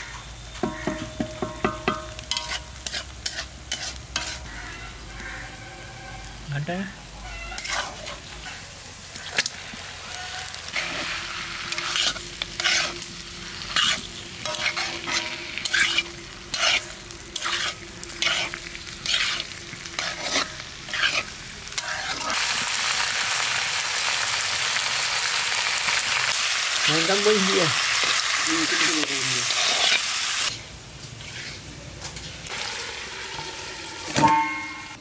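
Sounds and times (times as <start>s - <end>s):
food sizzling in a pan: 0.0s - 35.0s
metal spatula scraping a pan: 0.6s - 5.5s, 7.2s - 8.6s, 10.2s - 22.4s, 31.2s - 31.6s.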